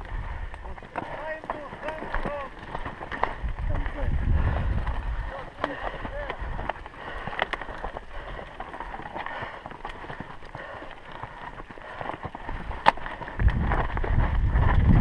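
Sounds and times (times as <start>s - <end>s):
wind rumble on microphone: 0.0s - 9.0s, 12.4s - 15.0s
bike rattling and clicking: 0.0s - 15.0s
footsteps on stony trail: 0.0s - 15.0s.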